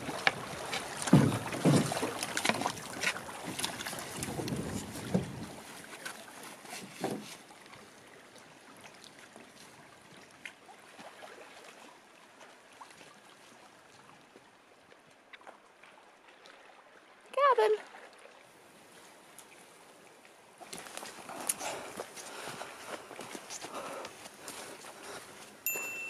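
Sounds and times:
soft paddle strokes: 0:00.0 - 0:16.8, 0:17.8 - 0:26.0
faint water sounds: 0:00.0 - 0:26.0
wind rumbling on microphone: 0:03.8 - 0:05.7.

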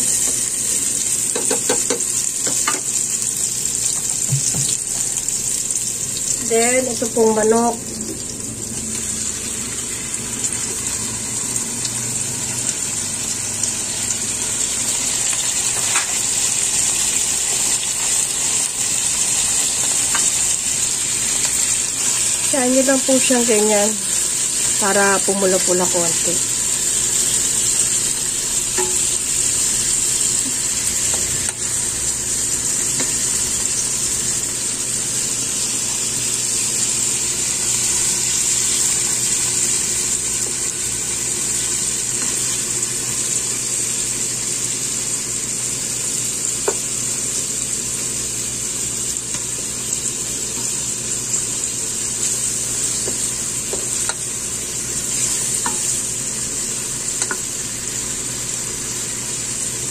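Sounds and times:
chicken sizzling in hot oil: 0:00.0 - 0:59.9.

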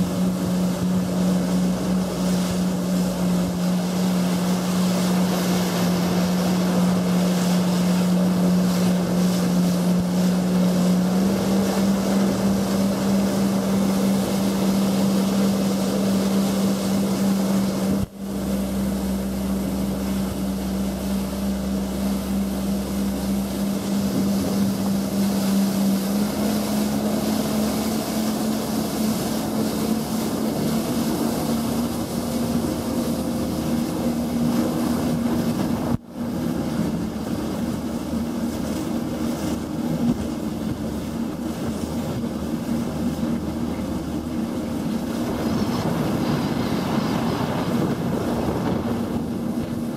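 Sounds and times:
wind noise on microphone: 0:00.0 - 0:27.2, 0:43.0 - 0:49.9
jet ski engine droning: 0:00.0 - 0:49.9
rushing water: 0:00.0 - 0:49.9.

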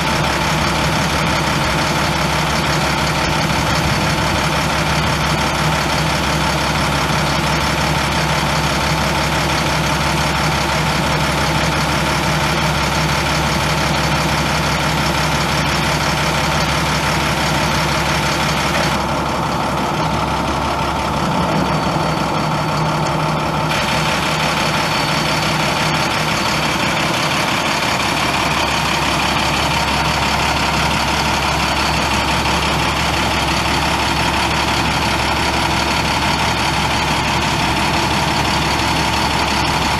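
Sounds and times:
diesel engine idling: 0:00.0 - 0:39.9.

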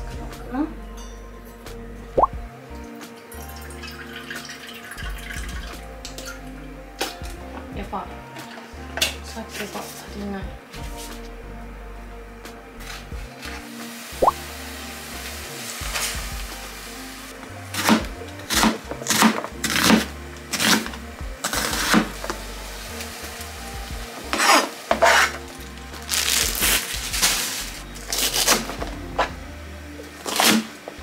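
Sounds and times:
food sizzling in a pot: 0:13.4 - 0:28.7.

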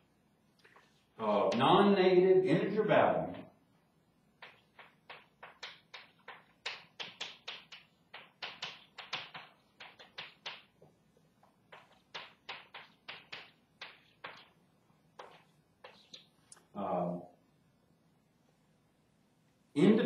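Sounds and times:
chalk tapping on blackboard: 0:04.4 - 0:16.5.

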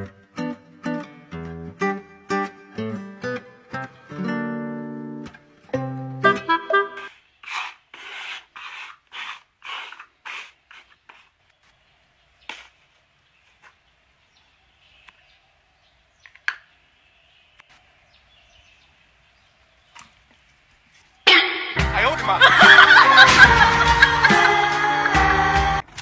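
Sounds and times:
plastic cups scraping on wooden floor: 0:06.9 - 0:11.4.

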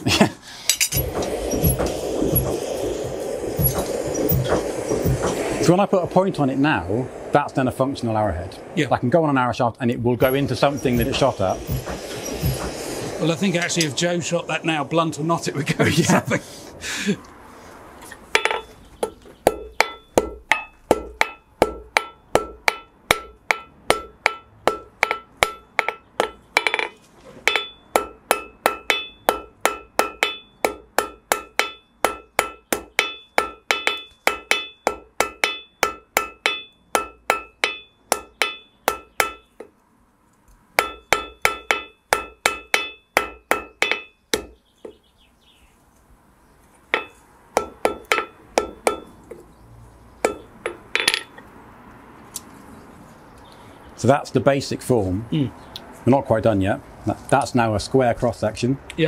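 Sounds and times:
hammer striking hot iron on anvil: 0:00.7 - 0:05.5, 0:10.2 - 0:13.0, 0:18.3 - 0:39.7, 0:40.8 - 0:44.6, 0:46.9 - 0:49.4, 0:50.2 - 0:51.4.

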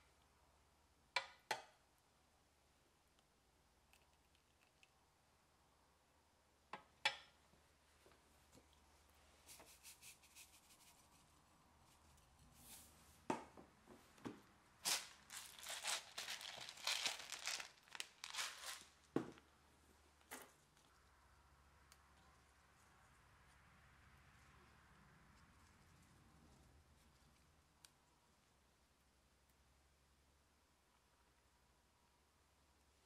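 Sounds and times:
crinkling and rustling: 0:09.5 - 0:21.1.

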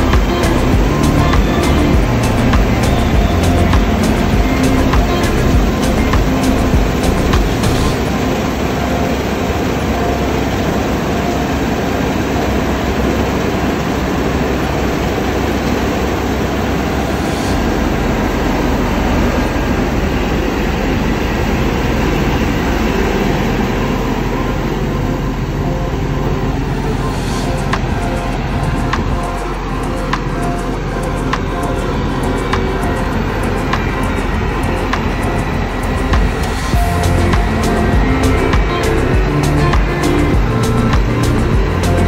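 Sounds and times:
combine harvester running: 0:00.0 - 0:42.0.

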